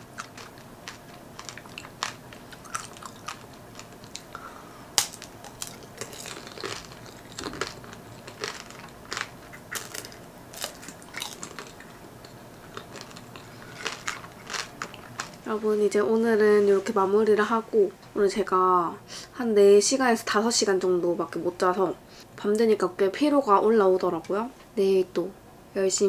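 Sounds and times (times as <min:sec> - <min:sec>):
candied fruit crunching: 0:00.0 - 0:15.5.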